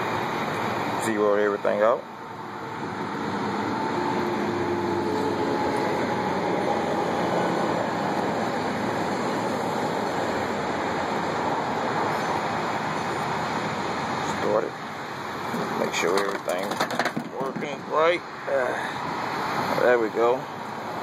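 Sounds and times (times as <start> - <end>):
faint engine hum: 0.0 - 21.0
road traffic rushing: 0.0 - 21.0.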